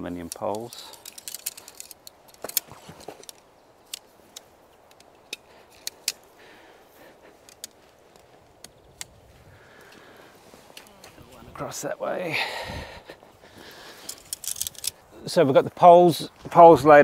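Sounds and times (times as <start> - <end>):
tent poles clicking together: 0.0 - 11.4, 13.1 - 15.1.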